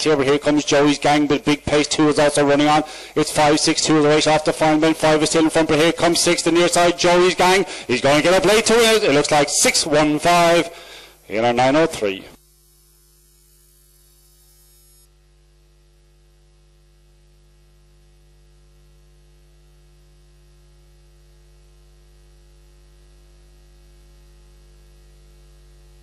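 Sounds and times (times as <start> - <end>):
background hiss: 0.0 - 15.1
electrical mains hum: 0.0 - 26.0.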